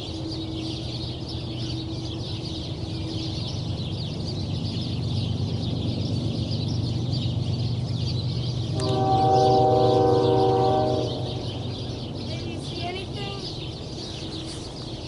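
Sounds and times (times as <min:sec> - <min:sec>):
train rumble: 0:00.0 - 0:15.0
locomotive air horn: 0:08.7 - 0:11.6.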